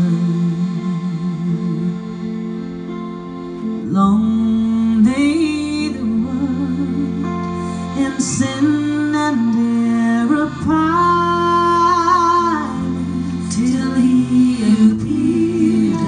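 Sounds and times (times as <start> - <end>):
female vocal trio singing: 8.0 - 16.0.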